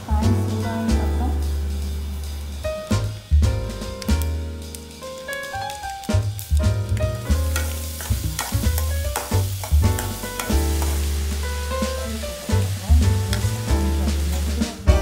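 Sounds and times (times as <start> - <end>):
onions sizzling in hot oil: 0.0 - 15.0
music with heavy bass: 0.1 - 5.1, 8.1 - 15.0.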